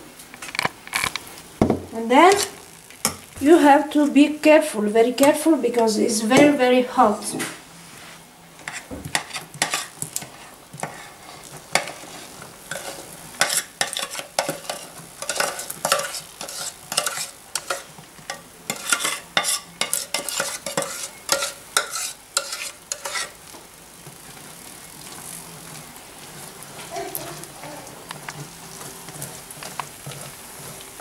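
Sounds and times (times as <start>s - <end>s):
spoon scraping a saucepan: 2.3s - 2.6s, 8.6s - 23.4s.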